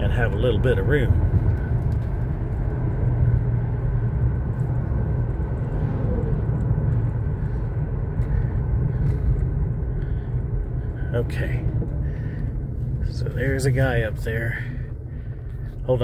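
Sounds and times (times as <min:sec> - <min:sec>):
car cabin road and engine rumble: 0:00.0 - 0:16.0.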